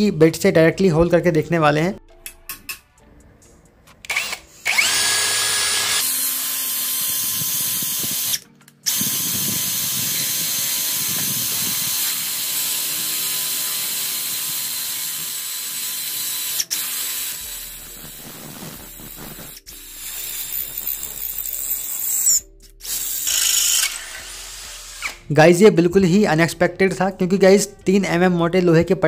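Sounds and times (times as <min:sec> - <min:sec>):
drill grinding into metal: 0:04.1 - 0:25.3.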